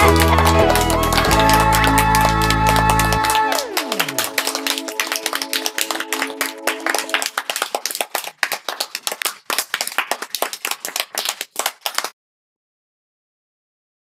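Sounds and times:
music jingle: 0:00.0 - 0:07.2
small group clapping: 0:00.0 - 0:12.2.

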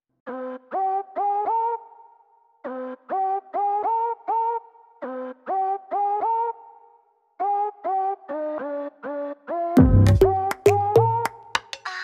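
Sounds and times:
deep bass beat: 0:09.8 - 0:11.2
electronic music with plucked notes: 0:09.8 - 0:12.0.

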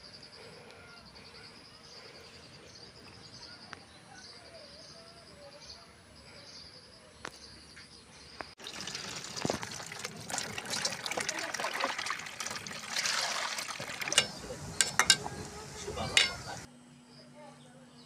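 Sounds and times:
running water splashing: 0:08.6 - 0:16.7
insects chirping: 0:12.1 - 0:17.4.

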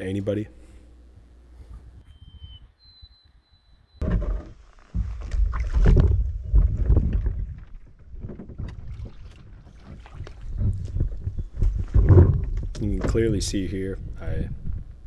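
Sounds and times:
water sloshing: 0:04.1 - 0:13.5.

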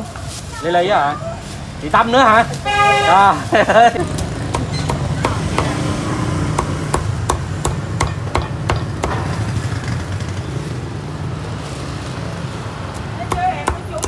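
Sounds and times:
cleaver chopping on wooden block: 0:04.2 - 0:05.9, 0:06.5 - 0:09.3, 0:12.9 - 0:14.0.

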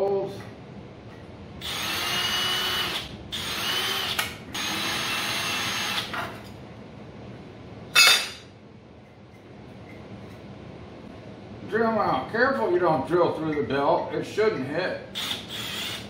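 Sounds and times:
cordless drill whining: 0:01.6 - 0:06.1, 0:15.2 - 0:16.0.

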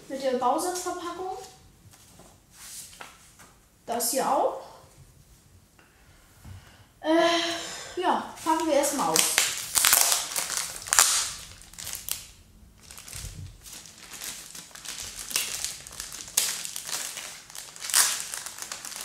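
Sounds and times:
plastic bag crinkling: 0:08.4 - 0:19.0.

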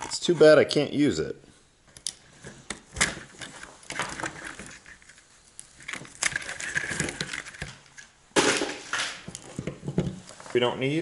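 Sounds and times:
plastic connectors clicking: 0:01.9 - 0:04.8.

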